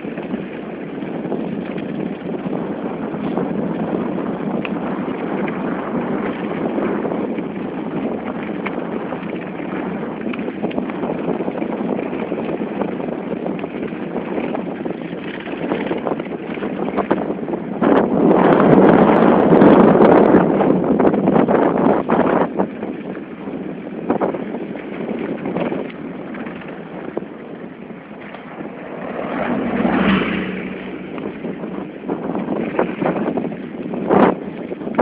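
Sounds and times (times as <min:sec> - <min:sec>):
wind on microphone: 0:00.0 - 0:35.0
tyres rushing over packed snow: 0:24.2 - 0:35.0.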